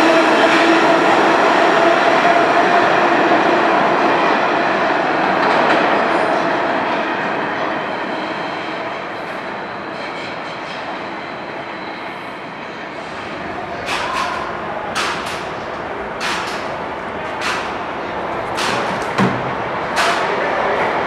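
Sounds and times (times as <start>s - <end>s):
train wheels rumbling and clacking: 13.0s - 21.0s.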